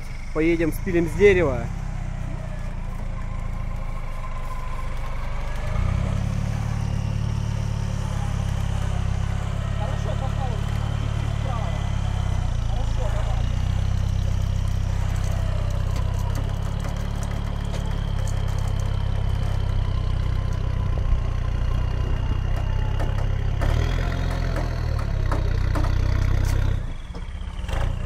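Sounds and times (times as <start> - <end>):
truck engine running at low revs: 0.0 - 28.0.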